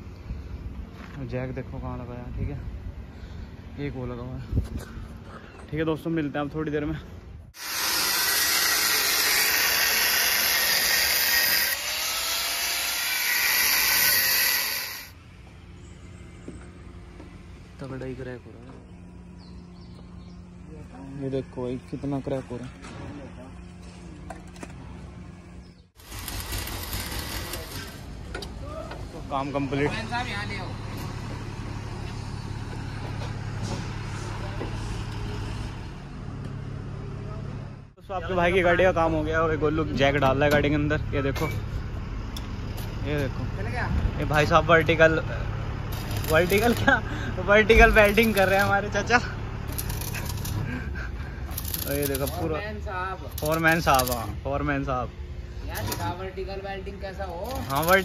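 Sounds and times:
angle grinder grinding steel: 0:07.6 - 0:15.2, 0:26.0 - 0:28.1
diesel engine idling: 0:46.8 - 0:51.8.

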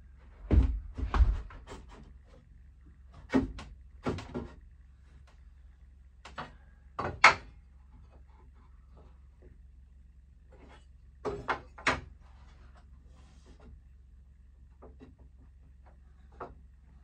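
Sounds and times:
wooden boards knocking: 0:00.4 - 0:02.0.

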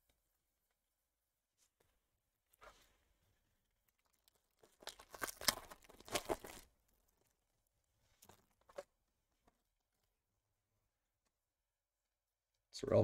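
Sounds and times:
wrapper and cards rustling: 0:03.9 - 0:07.3
wrapper tearing open: 0:04.0 - 0:06.7.

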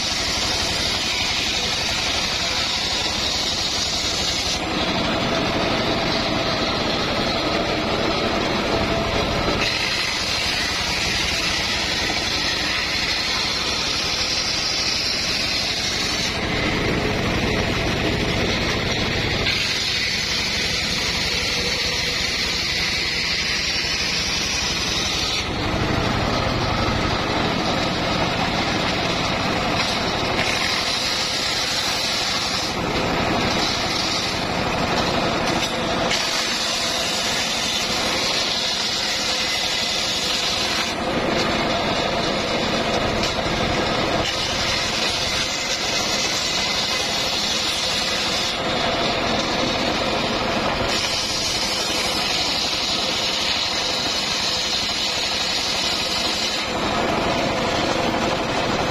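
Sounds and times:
circular saw cutting wood: 0:00.0 - 0:58.9.

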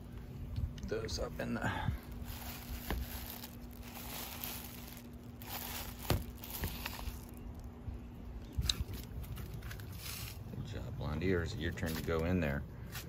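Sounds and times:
paper crinkling and rustling: 0:02.1 - 0:07.7, 0:08.8 - 0:10.5.

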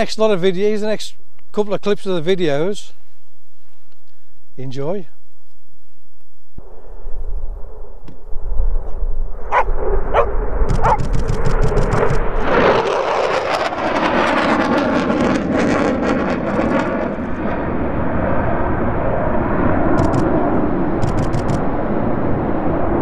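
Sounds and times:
jet flying past: 0:06.6 - 0:23.0
dog yelping: 0:09.5 - 0:11.2.

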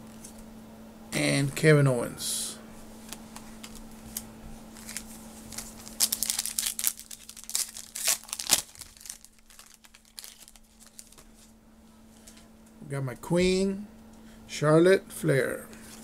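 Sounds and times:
wrapper crinkling and tearing: 0:03.4 - 0:11.5.

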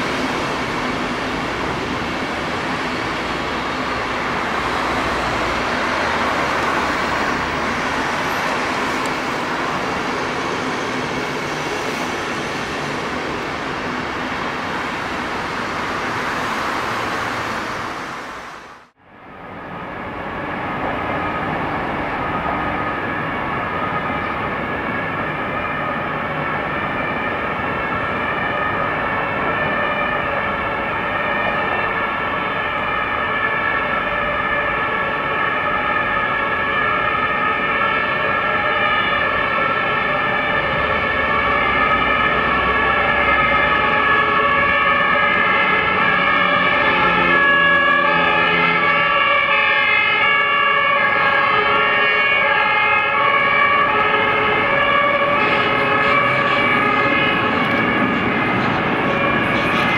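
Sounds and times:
train rumbling across bridge: 0:00.0 - 0:33.2, 0:53.2 - 0:59.9.

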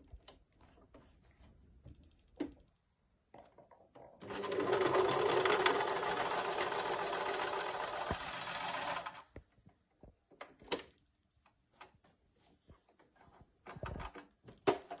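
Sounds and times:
sewing machine stitching: 0:04.2 - 0:09.3.

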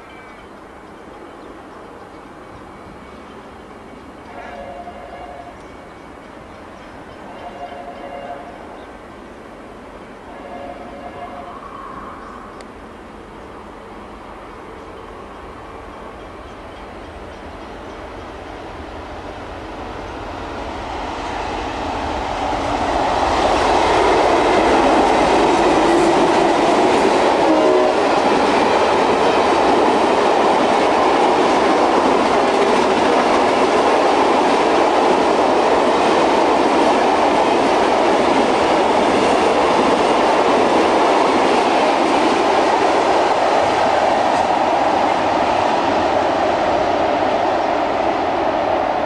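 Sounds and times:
freight train wagons rumbling: 0:00.0 - 0:49.0.

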